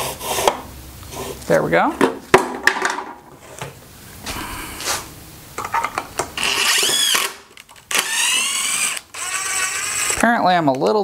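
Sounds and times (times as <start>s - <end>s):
cordless drill drilling into wood: 6.4s - 10.2s.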